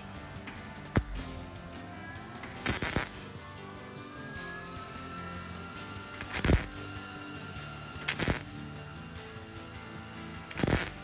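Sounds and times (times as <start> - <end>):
background music: 0.0 - 11.0
welder arc burst: 2.3 - 11.0.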